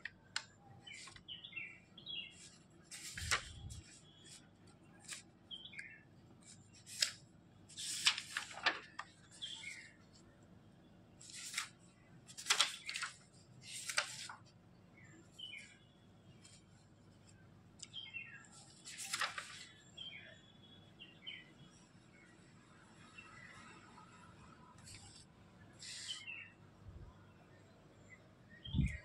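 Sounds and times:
paper rustling: 0:00.0 - 0:01.3, 0:02.3 - 0:05.3, 0:06.4 - 0:09.9, 0:11.2 - 0:14.5, 0:18.6 - 0:19.7
small birds chirping: 0:00.2 - 0:06.9, 0:17.8 - 0:21.5.

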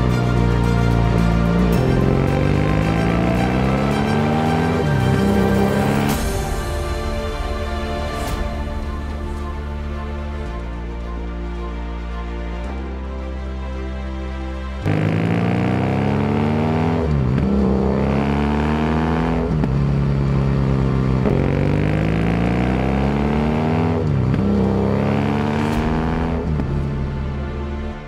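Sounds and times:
motorcycle engine accelerating: 0:00.0 - 0:07.5, 0:14.8 - 0:27.5.

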